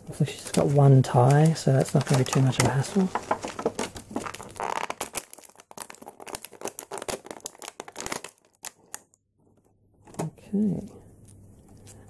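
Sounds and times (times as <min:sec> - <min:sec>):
plastic packaging crinkling: 0:00.1 - 0:09.6.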